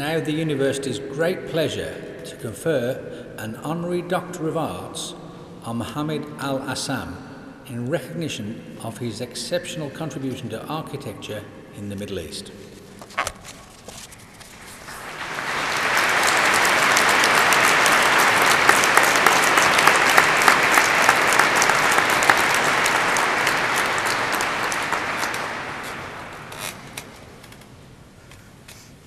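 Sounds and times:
audience applauding: 14.5s - 27.5s.

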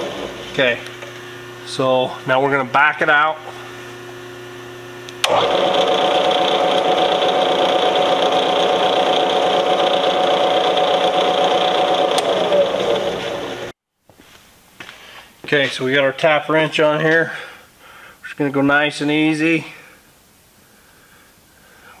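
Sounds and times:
milling machine spindle running: 3.4s - 13.7s.

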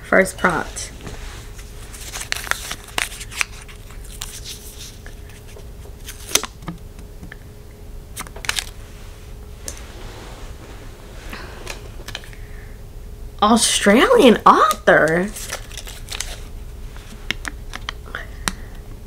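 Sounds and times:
paper crinkling and rustling: 1.0s - 6.7s, 8.2s - 8.8s, 15.1s - 17.9s.

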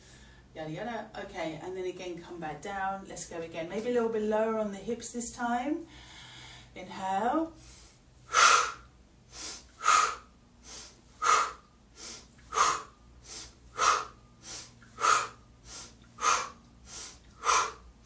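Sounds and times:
woman inhaling through nose: 7.6s - 17.9s
woman exhaling forcefully: 8.3s - 18.0s.

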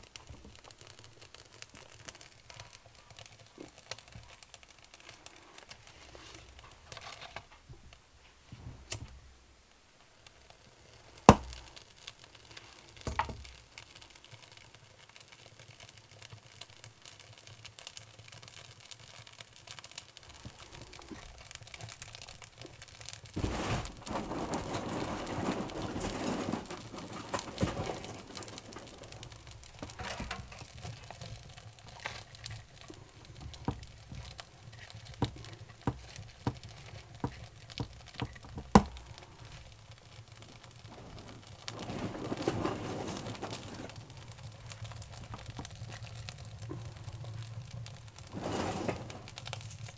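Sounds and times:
bark crackling and popping: 0.0s - 49.9s.

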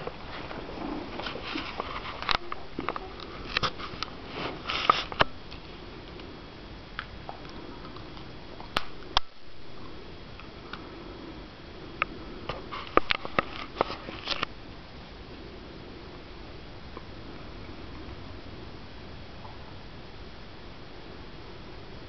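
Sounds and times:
small clicks and rustles: 0.0s - 9.4s, 12.0s - 14.5s.

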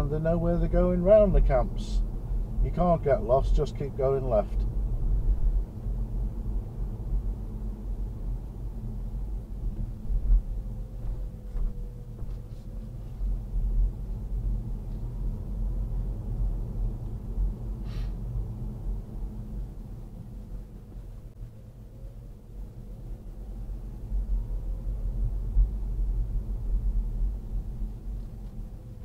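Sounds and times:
car interior engine and tyre rumble: 0.0s - 29.0s.

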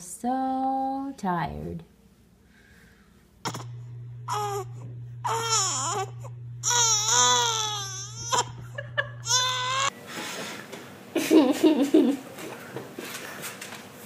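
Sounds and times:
steady low hum: 0.0s - 13.8s
baby crying: 4.3s - 9.9s.

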